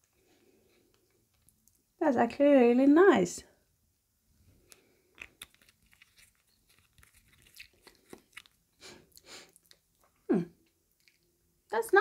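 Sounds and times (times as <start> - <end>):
lip smacks: 4.7 - 11.3.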